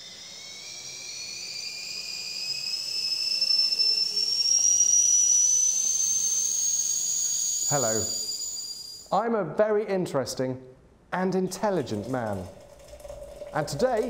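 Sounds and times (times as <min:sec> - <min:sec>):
stovetop kettle whistling: 0:00.0 - 0:09.1.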